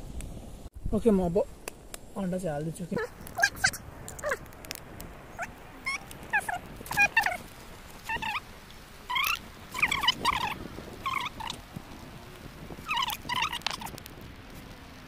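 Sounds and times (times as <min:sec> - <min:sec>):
short high wavering animal calls: 0:05.4 - 0:07.4, 0:08.0 - 0:08.4, 0:09.1 - 0:11.6, 0:12.9 - 0:13.9.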